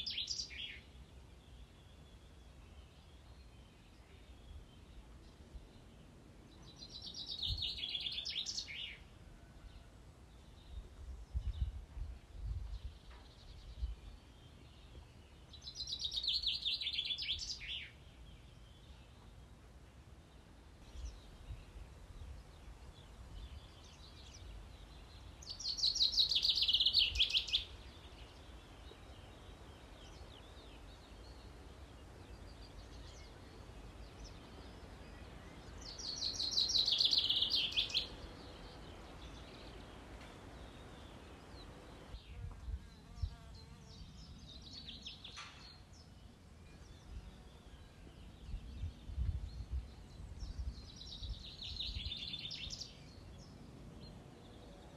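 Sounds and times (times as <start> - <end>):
bird chirps: 12.9 - 18.0, 23.4 - 53.6.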